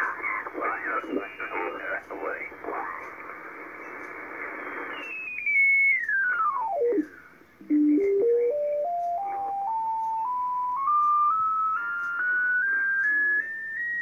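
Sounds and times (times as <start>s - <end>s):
radio hiss and garbled audio: 0.0s - 10.1s
radio whistle changing pitch: 4.6s - 7.3s, 7.9s - 14.0s.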